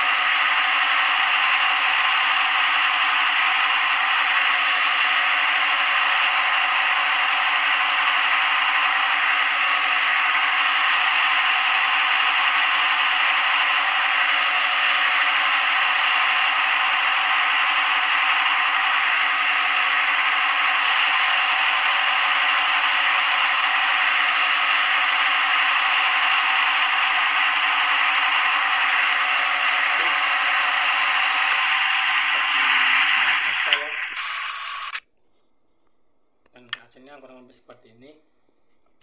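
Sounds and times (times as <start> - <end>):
machining rattling hiss: 0.0 - 35.0.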